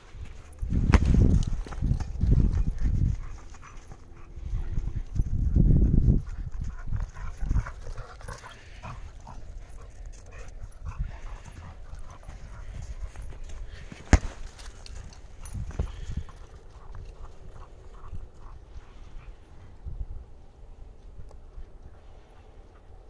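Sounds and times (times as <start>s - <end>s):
rustling of paws and footsteps: 0.0s - 23.0s
dog panting: 1.4s - 19.8s.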